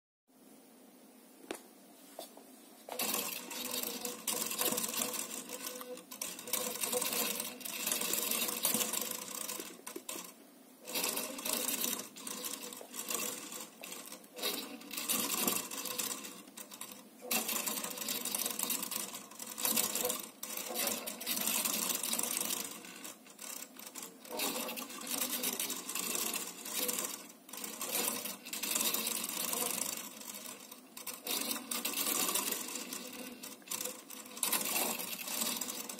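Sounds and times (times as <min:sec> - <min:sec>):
motors buzzing and chattering: 0:02.9 - 0:35.9.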